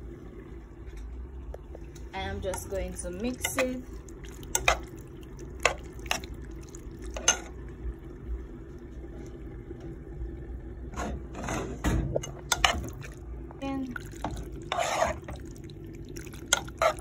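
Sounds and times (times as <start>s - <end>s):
steady low hum: 0.0s - 17.0s
wet squelching of pasta: 2.6s - 7.3s, 12.6s - 17.0s.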